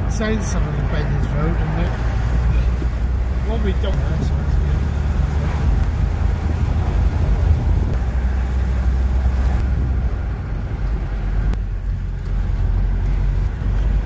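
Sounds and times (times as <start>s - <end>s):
car engine and tyre drone: 0.0s - 14.0s.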